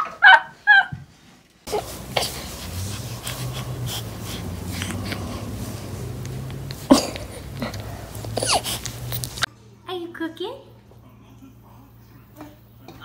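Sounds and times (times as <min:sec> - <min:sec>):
baby snuffling and breathing: 0:01.7 - 0:09.5
small clicks and sniffs: 0:01.7 - 0:09.5
steady low hum: 0:01.7 - 0:09.8.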